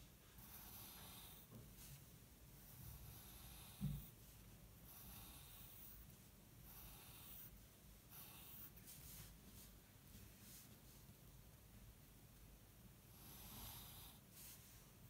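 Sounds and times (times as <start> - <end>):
soft low thump: 3.8 - 4.2.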